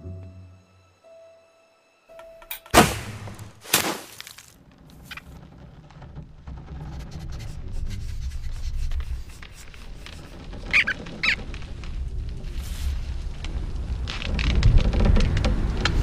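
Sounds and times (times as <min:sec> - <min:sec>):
cartoon squirrel squeaking: 0:10.7 - 0:11.4.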